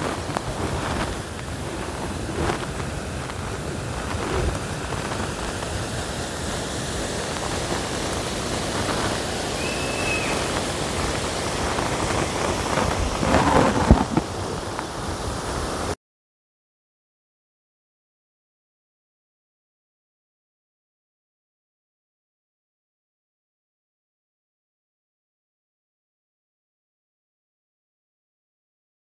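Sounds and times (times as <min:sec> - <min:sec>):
wind buffeting microphone: 0:00.0 - 0:16.0
short high chirp: 0:09.6 - 0:10.5
thumps: 0:13.2 - 0:14.4.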